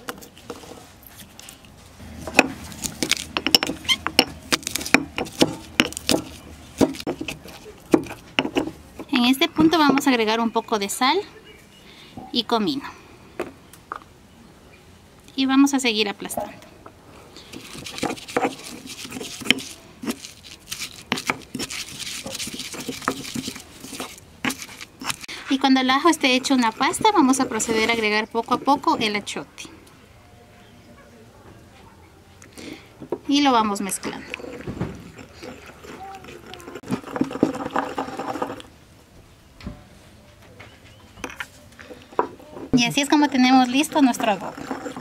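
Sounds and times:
wet scraping: 0.0 - 9.2, 17.4 - 29.2, 33.7 - 38.7, 42.9 - 45.0
pestle pounding in stone mortar: 2.1 - 10.1, 17.5 - 25.2
stone pestle knocking in mortar: 3.1 - 9.1.

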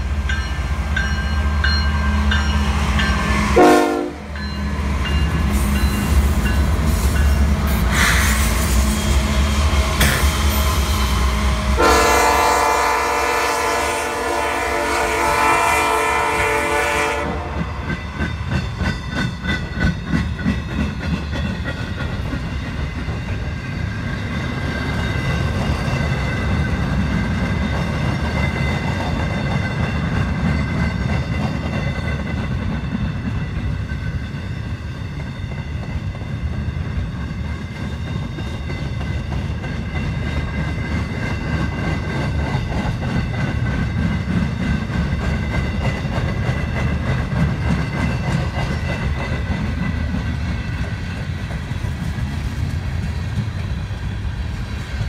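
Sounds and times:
freight train rumbling past: 0.0 - 55.0
locomotive air horn: 3.6 - 4.3, 11.8 - 17.8.

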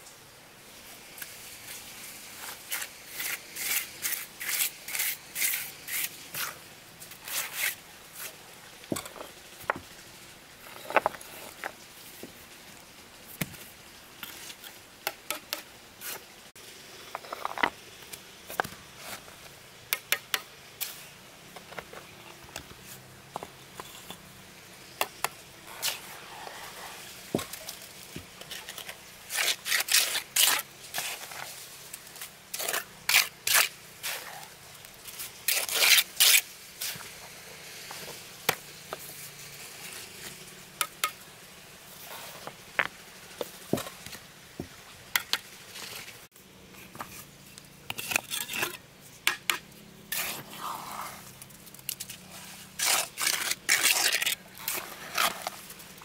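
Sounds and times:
trowel scraping mortar: 2.4 - 8.4, 25.0 - 37.2, 47.9 - 51.3, 52.0 - 55.8.

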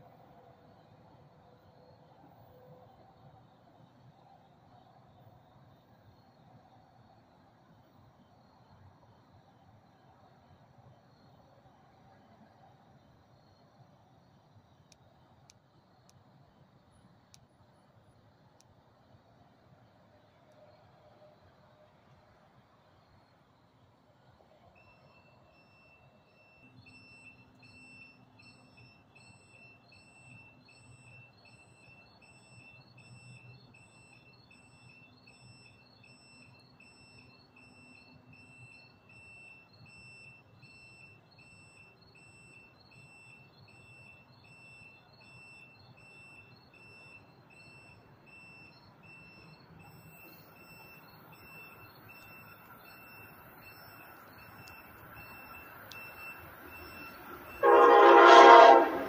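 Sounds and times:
faint electronic beeping: 0.0 - 59.0
train approaching hiss: 56.8 - 59.0.

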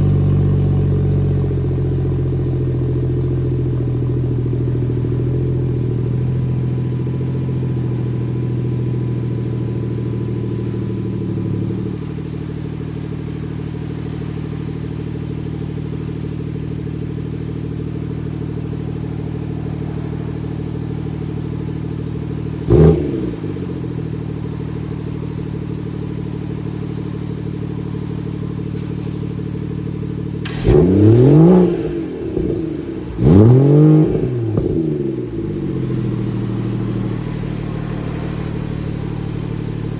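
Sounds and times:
car engine idling and revving: 0.0 - 39.9.

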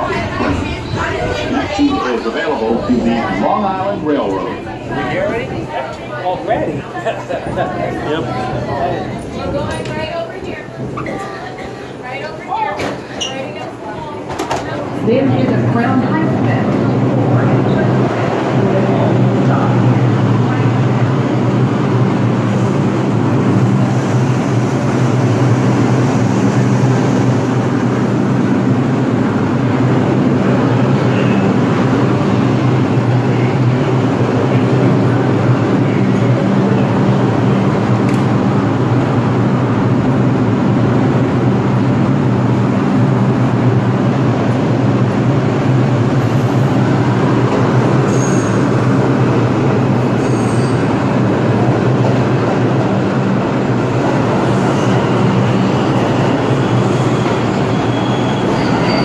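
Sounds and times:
subway train rumbling: 0.0 - 59.0
faint high squeals: 55.8 - 59.0.

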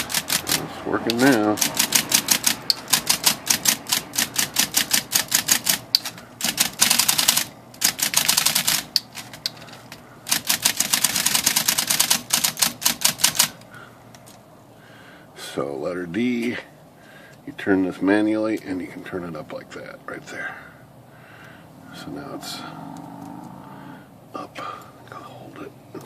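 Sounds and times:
electric typewriter typing: 0.0 - 9.5, 10.3 - 13.6.

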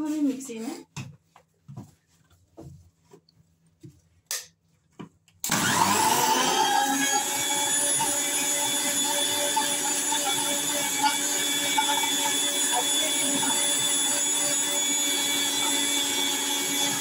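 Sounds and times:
mixer grinder motor running: 5.4 - 17.0.

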